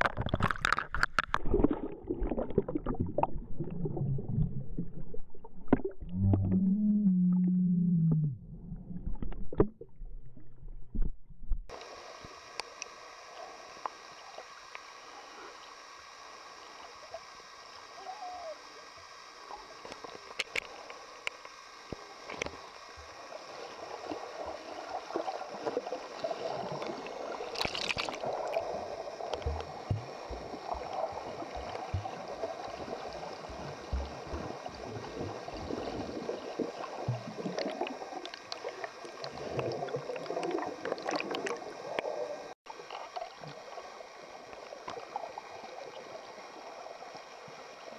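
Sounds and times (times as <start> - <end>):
underwater clicks: 0.0 - 3.4, 19.8 - 22.6, 26.8 - 31.0
underwater rushing water: 0.0 - 6.9, 11.7 - 47.9.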